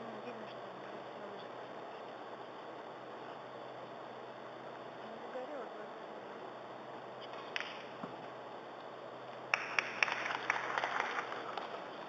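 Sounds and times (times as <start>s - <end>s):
audience clapping: 9.5s - 12.0s.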